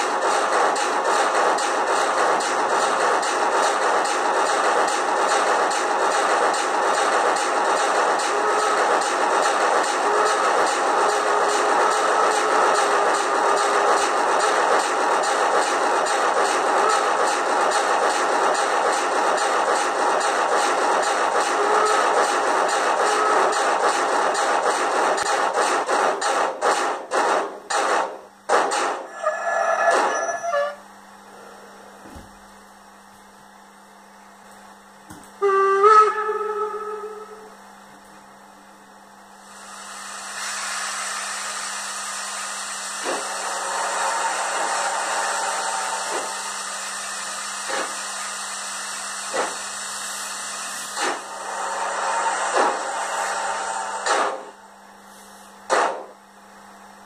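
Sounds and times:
model steam chuffs: 0.0 - 30.4, 35.4 - 37.6, 39.4 - 56.2
brief squeal: 29.1 - 30.8
steady steam hiss: 39.4 - 55.7.

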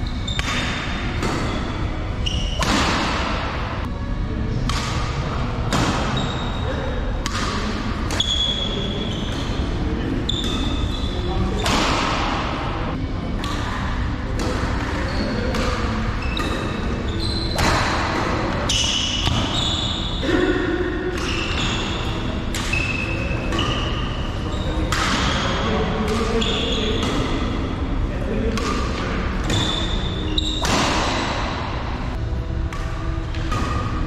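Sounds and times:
shoe squeaks: 0.0 - 2.7, 6.1 - 6.8, 8.1 - 11.7, 14.7 - 17.8, 18.7 - 20.4, 21.2 - 25.7, 26.3 - 27.1, 29.4 - 31.3
low background noise: 0.0 - 34.0
rackets striking shuttlecock: 0.3 - 4.0, 4.6 - 6.4, 7.2 - 9.8, 10.4 - 27.7, 28.5 - 34.0.

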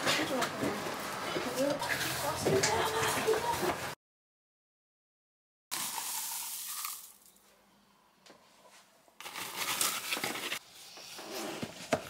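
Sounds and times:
crinkling rustling handling noise: 9.2 - 10.6.

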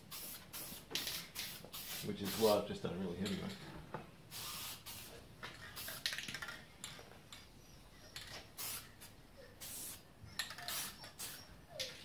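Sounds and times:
spray can hissing bursts: 0.0 - 2.6, 4.3 - 6.2, 8.6 - 11.4.

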